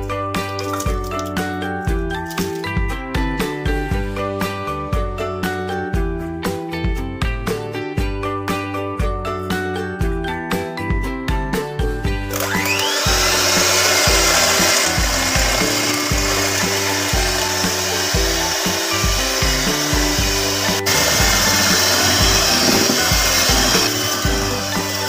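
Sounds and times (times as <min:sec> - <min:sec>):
background music with steady beat: 0:00.0 - 0:25.0
electric hand mixer running: 0:12.3 - 0:25.0.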